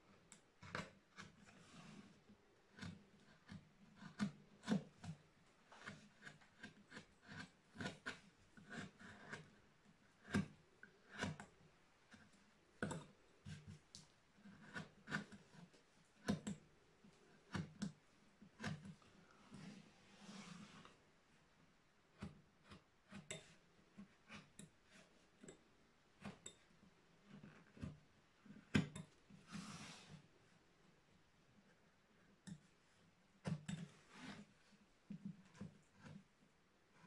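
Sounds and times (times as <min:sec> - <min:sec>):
chisel cutting into wood: 0:02.8 - 0:05.2, 0:05.8 - 0:09.6, 0:10.2 - 0:11.6, 0:14.4 - 0:15.6, 0:18.6 - 0:19.0.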